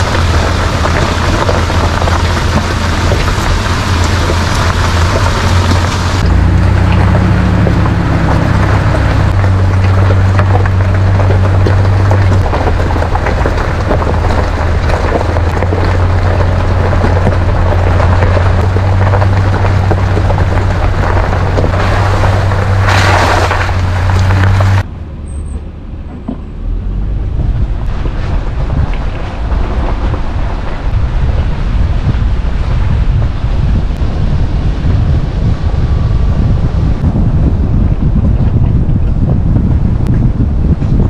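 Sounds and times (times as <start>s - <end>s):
car engine running: 0.0s - 41.0s
loud rushing noise: 20.4s - 25.2s.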